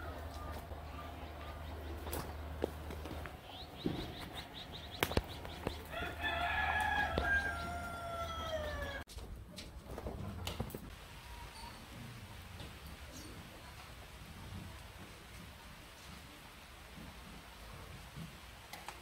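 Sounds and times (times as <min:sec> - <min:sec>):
rooster crowing: 0:05.8 - 0:09.1.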